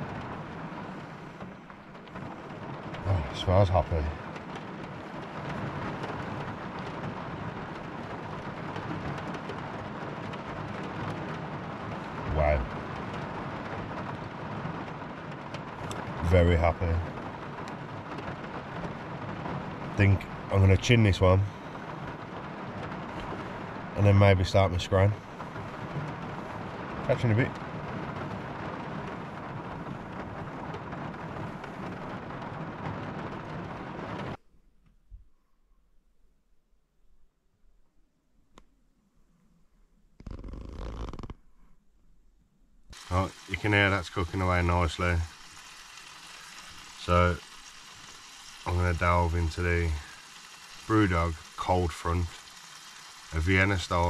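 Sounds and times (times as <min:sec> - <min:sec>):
heavy rain on a car roof: 0:00.0 - 0:34.4, 0:40.2 - 0:41.4, 0:42.9 - 0:54.0.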